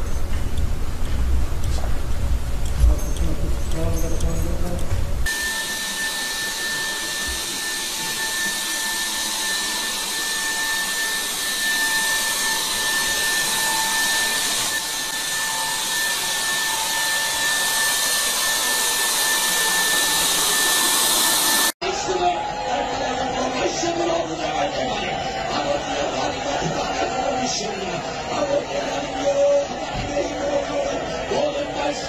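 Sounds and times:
disinfectant fogger running: 0.7s - 21.8s.

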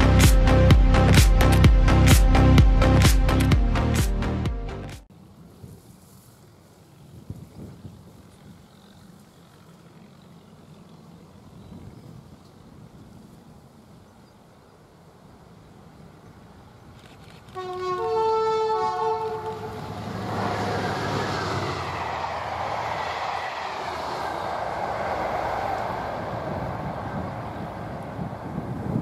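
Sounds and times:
two-tone locomotive horn: 17.5s - 22.0s
train passing at speed: 17.5s - 29.0s.

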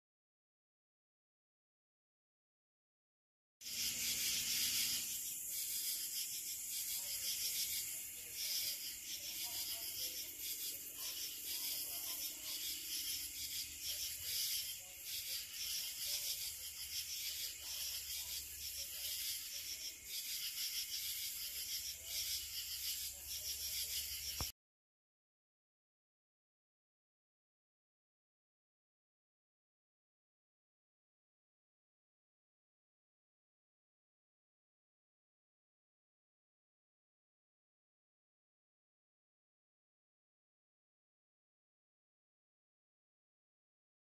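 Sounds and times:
night insects chorusing: 3.7s - 24.5s.

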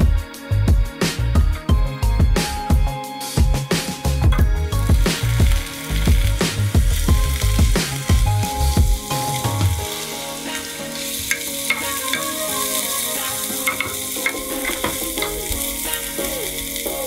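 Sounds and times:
vegetables sizzling in oil: 4.6s - 17.0s.

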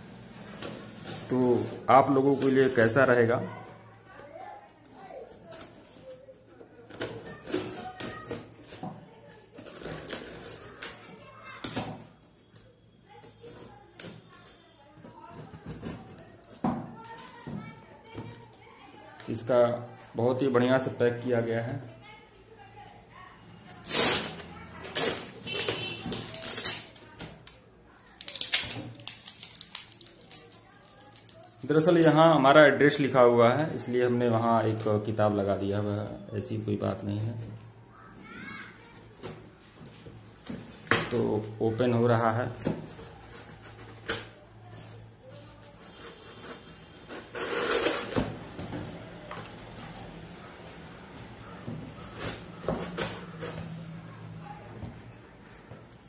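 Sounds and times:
cardboard rustling and scraping: 0.2s - 12.1s, 42.4s - 50.0s, 51.7s - 53.9s.

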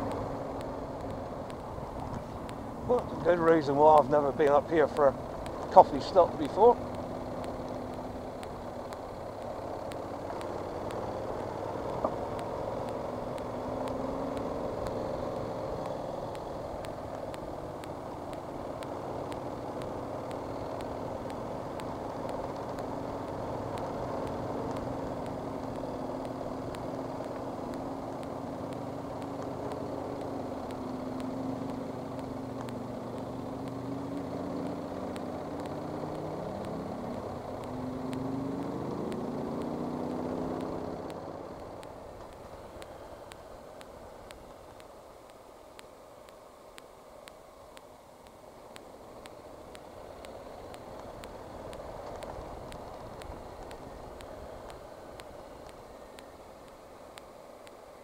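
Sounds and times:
motorcycle engine running: 0.0s - 58.0s
wind and road noise: 0.0s - 58.0s.

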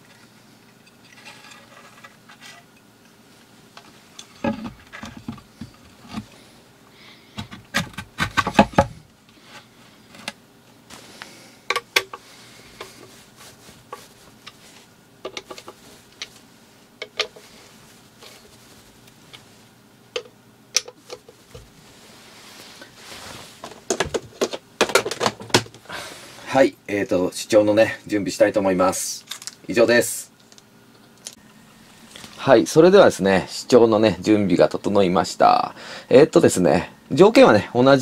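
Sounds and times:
handling knocks and clicks: 15.2s - 16.4s, 17.0s - 17.5s, 20.1s - 21.7s, 23.6s - 25.8s.

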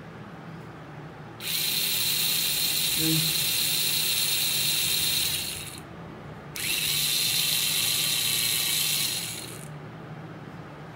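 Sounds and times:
small motor whirring: 1.4s - 5.8s, 6.6s - 9.7s.

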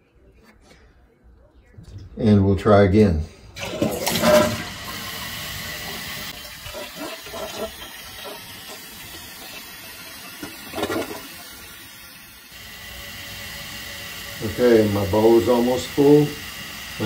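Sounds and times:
toilet cistern refilling: 3.6s - 17.0s.

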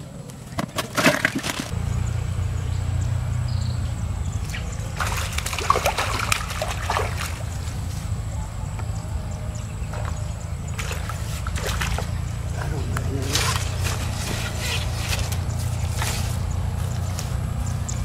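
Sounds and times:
water splashing and sloshing: 0.5s - 1.9s, 4.0s - 18.0s
steady low rumble: 1.7s - 18.0s.

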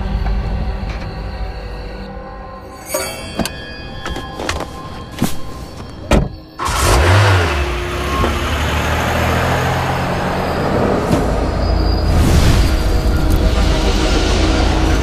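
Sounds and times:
road noise: 5.2s - 15.0s
car engine revving and driving: 6.6s - 15.0s.

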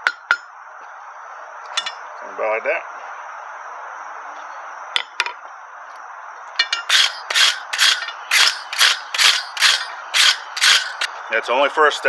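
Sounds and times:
sharp metallic clinks: 6.6s - 11.1s
wire brush scrubbing steel: 6.6s - 11.1s.

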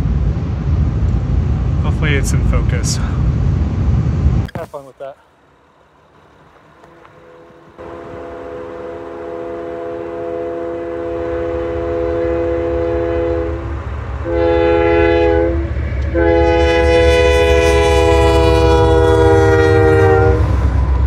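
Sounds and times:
low rumble of approaching train: 0.0s - 21.0s
locomotive air horn blasts: 7.2s - 20.8s.

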